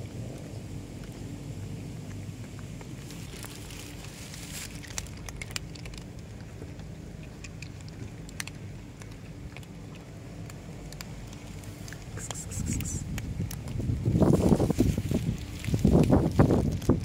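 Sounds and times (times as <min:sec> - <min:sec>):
cats crunching dry kibble: 0:00.0 - 0:17.0
steady low rumble: 0:00.0 - 0:17.0.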